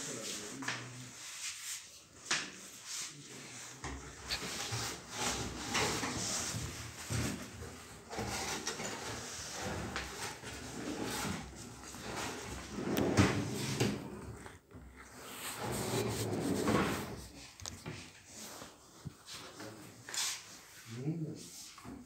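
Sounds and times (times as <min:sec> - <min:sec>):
drawers sliding: 0:04.2 - 0:14.5, 0:15.4 - 0:17.3.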